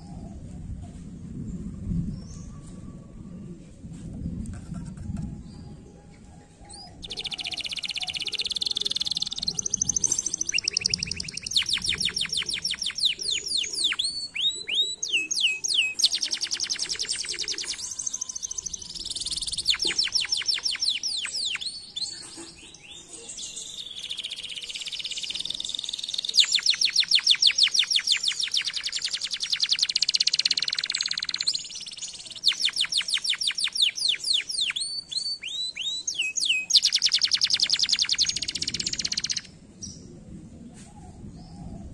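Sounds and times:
canary singing trills: 6.6s - 40.0s.

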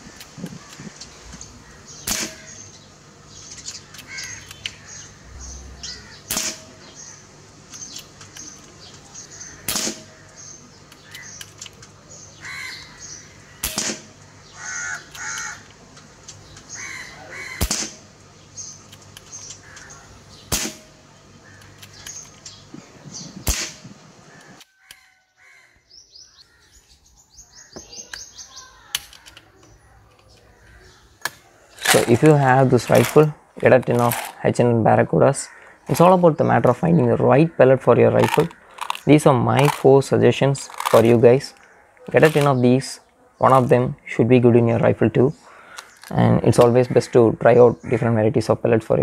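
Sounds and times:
air rifle shots: 2.0s - 2.7s, 6.1s - 7.2s, 9.4s - 10.5s, 13.6s - 14.2s, 17.4s - 18.2s, 20.5s - 21.0s, 23.4s - 24.0s, 38.1s - 41.4s, 42.1s - 42.6s.

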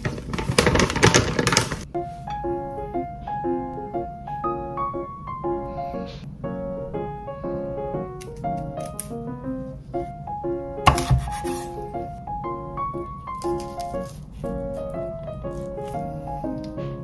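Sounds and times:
plastic bag crinkling: 0.0s - 1.9s
plinking keyboard music: 1.8s - 17.0s.

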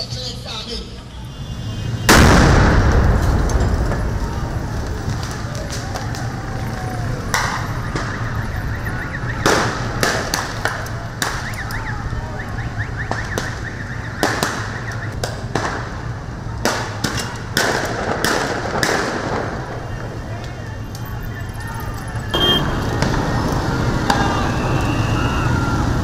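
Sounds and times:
street noise: 0.0s - 26.0s
loud bangs: 1.6s - 26.0s.

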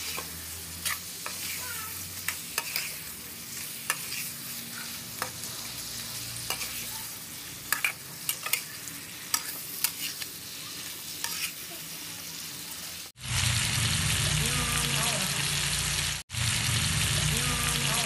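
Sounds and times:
metal spatula scraping pan: 0.0s - 11.7s
prawns sizzling in a wok: 0.0s - 18.0s.

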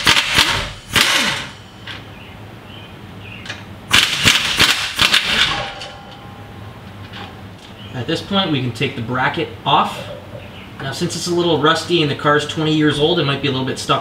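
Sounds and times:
impact gun rattling: 3.9s - 5.9s.

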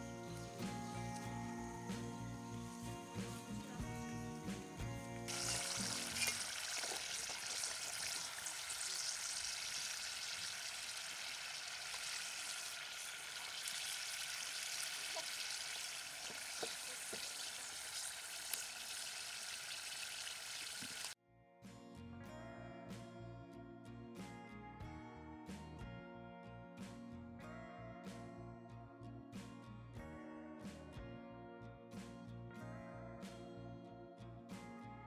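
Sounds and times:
food deep-frying in oil: 5.3s - 21.2s.

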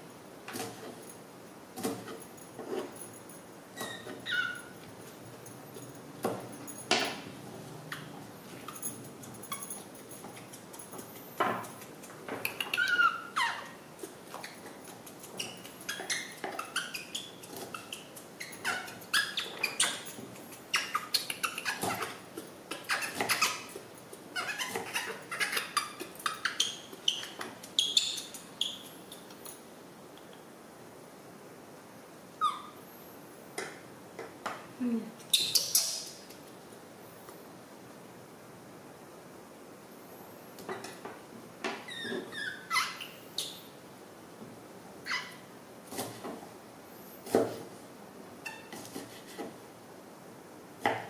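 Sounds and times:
baby monkey squeaking: 3.8s - 4.8s, 12.4s - 13.8s, 15.4s - 23.7s, 24.4s - 28.9s, 32.4s - 32.8s, 35.3s - 36.2s, 41.9s - 43.7s, 45.0s - 45.4s.

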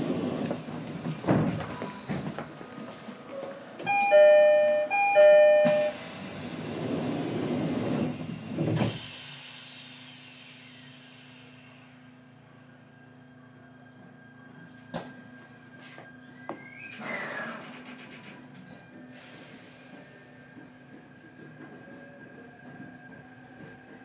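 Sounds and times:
train doors hissing: 3.5s - 12.1s, 19.1s - 20.2s
train door chime: 3.8s - 6.1s.

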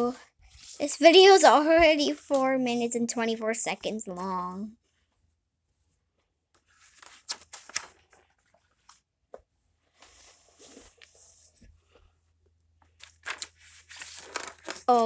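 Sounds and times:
paper pages rustling: 6.6s - 9.0s, 9.9s - 12.0s, 13.0s - 15.0s.

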